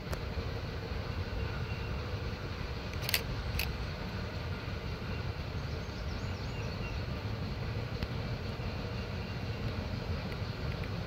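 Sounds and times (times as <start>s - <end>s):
steam locomotive low rumble: 0.0s - 11.0s
sharp clicks: 2.9s - 3.7s.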